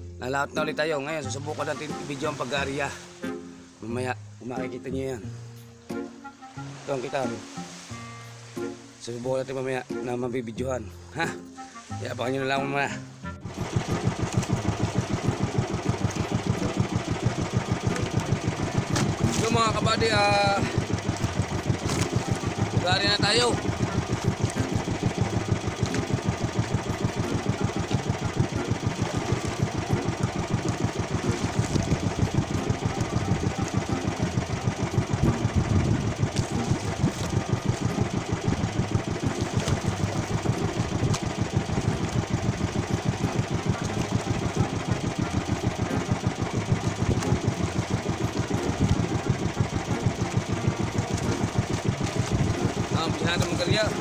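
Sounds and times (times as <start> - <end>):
boat engine idling: 10.8 - 54.0.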